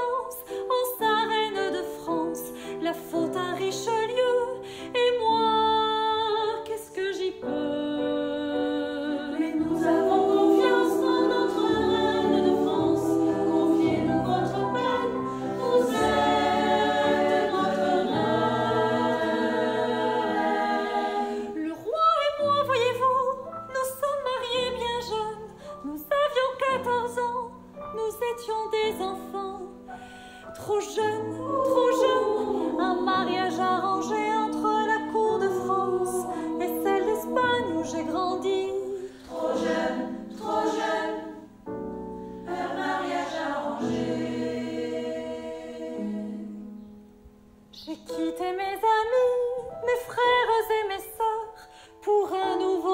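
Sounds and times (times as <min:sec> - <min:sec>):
women's choir singing: 0:05.1 - 0:23.0, 0:30.6 - 0:41.7, 0:42.4 - 0:46.9.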